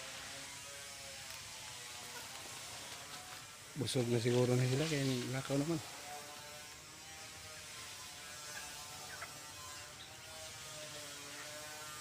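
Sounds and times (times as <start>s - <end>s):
ducklings peeping: 4.4s - 12.0s
duck bills chattering in feed: 4.6s - 12.0s.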